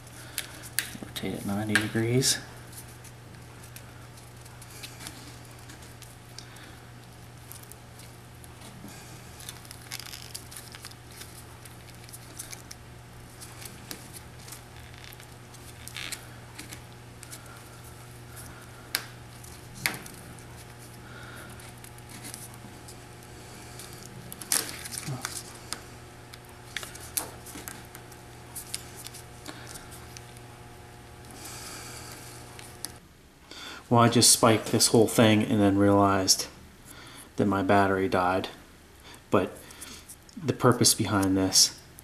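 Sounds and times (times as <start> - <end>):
twine rustling and creaking on paper: 0.0 - 30.5
steady low hum: 0.0 - 42.0.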